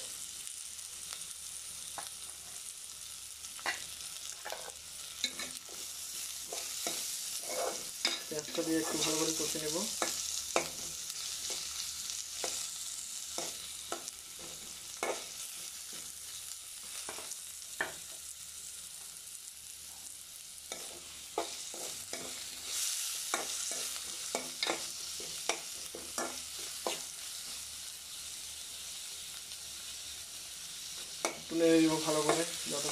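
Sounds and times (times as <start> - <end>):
onions sizzling in hot oil: 0.0 - 32.9.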